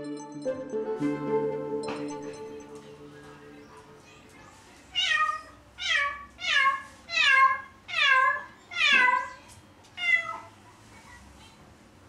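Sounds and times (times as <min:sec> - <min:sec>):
cat meowing: 0:04.9 - 0:09.4, 0:10.0 - 0:10.6.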